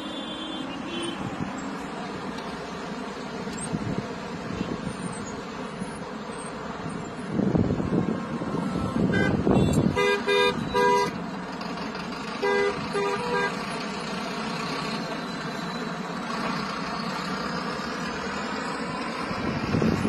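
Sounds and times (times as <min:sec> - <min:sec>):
car horn short toots: 0:00.0 - 0:01.3, 0:09.1 - 0:11.2, 0:12.4 - 0:13.6
passing road traffic: 0:00.0 - 0:20.0.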